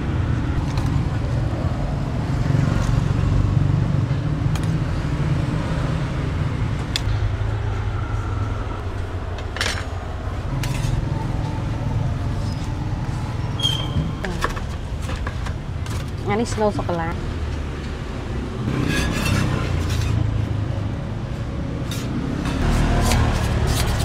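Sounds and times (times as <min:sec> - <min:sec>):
metal utensils scraping pans: 0:18.8 - 0:20.2.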